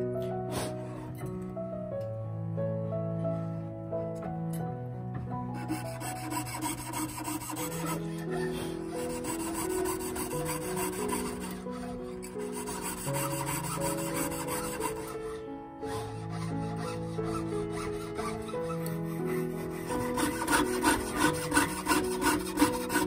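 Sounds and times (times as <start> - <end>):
background music: 0.0 - 23.0
file rasping against brass: 5.6 - 23.0.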